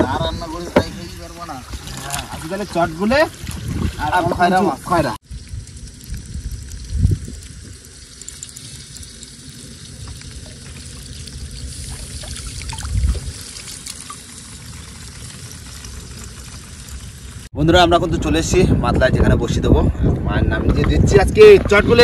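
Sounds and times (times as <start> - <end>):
water splashing against boat: 0.5 - 4.6.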